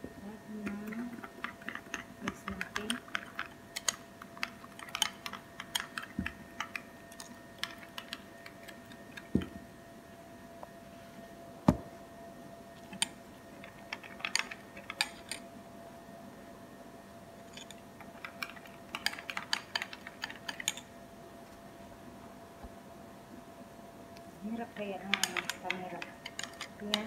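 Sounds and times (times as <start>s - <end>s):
metal spoon stirring in bowl: 0.5s - 9.3s, 24.7s - 27.0s.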